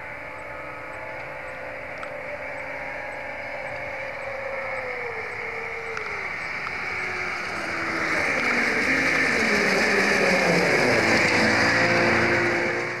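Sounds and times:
snowmobile engines racing: 0:00.0 - 0:13.0
track hissing on snow: 0:06.2 - 0:13.0.

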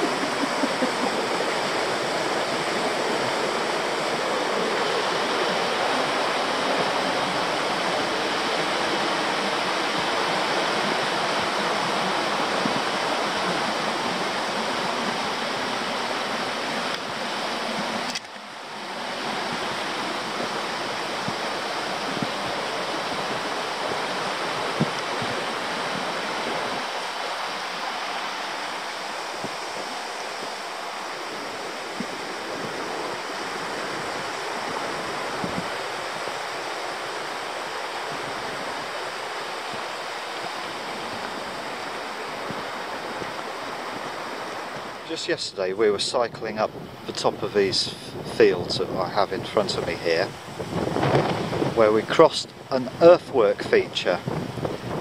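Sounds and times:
river rushing over rocks: 0:00.0 - 0:55.0.

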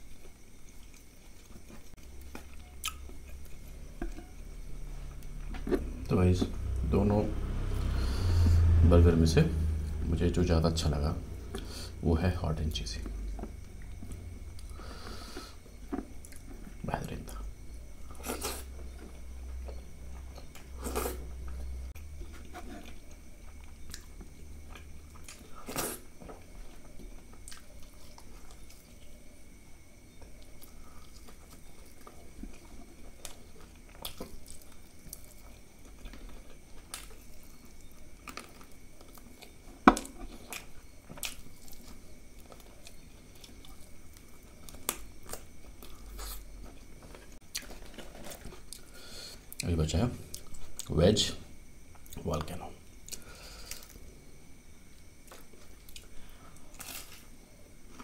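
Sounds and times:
wet chewing: 0:00.6 - 0:04.4.

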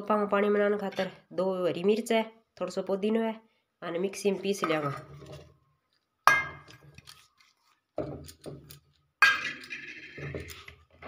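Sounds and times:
metal bowl clanking: 0:04.6 - 0:05.5, 0:06.2 - 0:07.2, 0:08.0 - 0:10.8.

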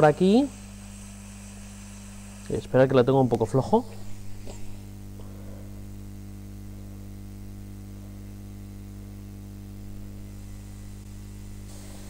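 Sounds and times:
hot air station humming: 0:00.0 - 0:12.0
hiss of air: 0:11.6 - 0:12.0.

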